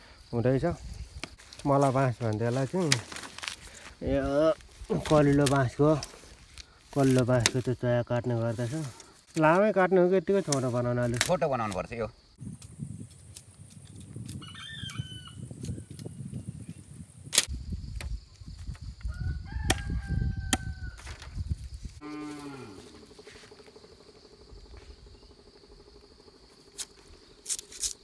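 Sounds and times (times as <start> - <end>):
knife cutting and splitting bamboo: 1.2 - 3.9, 4.6 - 7.7, 10.4 - 15.0, 19.6 - 21.3, 26.7 - 28.0.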